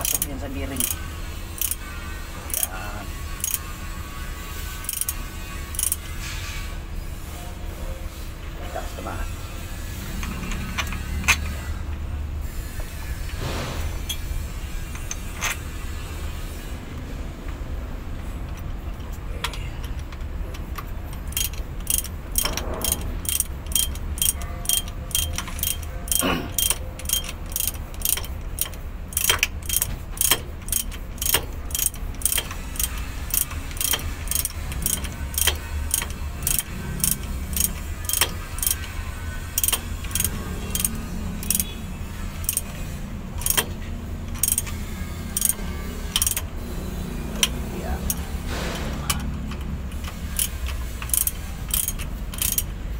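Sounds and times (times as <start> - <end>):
ratchet wrench clicking: 0.0 - 6.6, 9.7 - 17.1, 18.2 - 52.9
steady low hum: 0.0 - 52.9.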